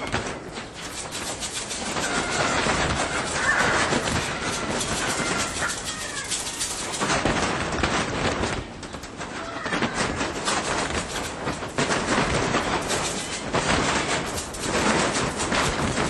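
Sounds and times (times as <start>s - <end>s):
wire cages rattling: 0.0s - 16.0s
faint high animal calls: 2.0s - 6.5s.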